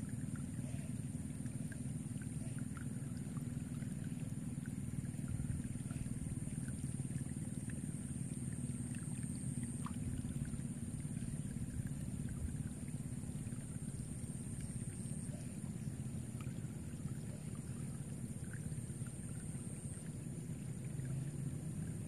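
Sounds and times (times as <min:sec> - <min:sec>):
wind rumbling on microphone: 0:10.0 - 0:14.8.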